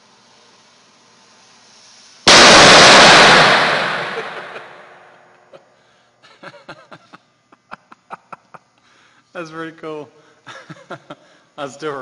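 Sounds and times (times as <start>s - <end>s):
firecracker bang with echo: 2.3s - 5.2s.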